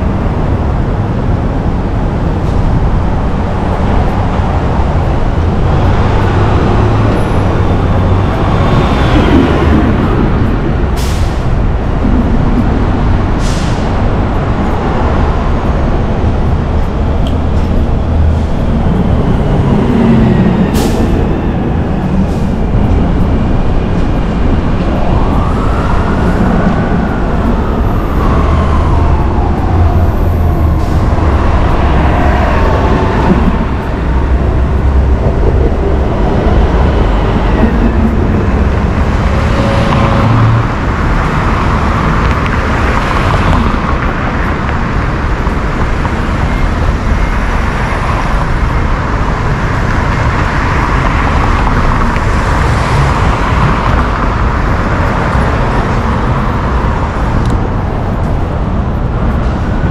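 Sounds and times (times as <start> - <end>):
passing cars and trucks: 0.0 - 59.9
wind on microphone: 0.0 - 59.9
siren wailing: 18.0 - 42.2.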